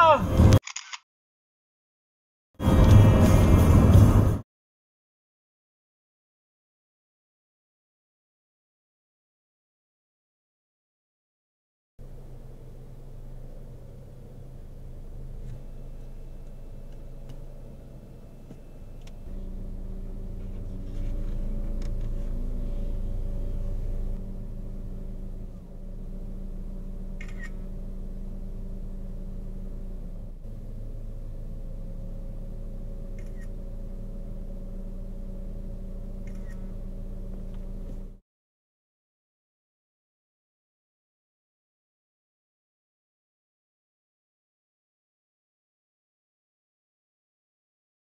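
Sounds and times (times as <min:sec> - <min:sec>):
motor humming: 0:12.0 - 0:38.2.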